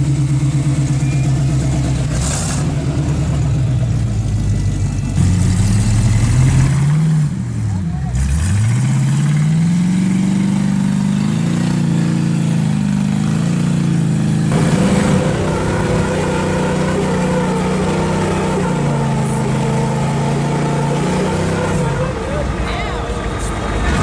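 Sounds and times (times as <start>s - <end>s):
tires spinning in sand: 0.0s - 24.0s
engine revving hard: 1.9s - 3.4s, 5.2s - 22.6s.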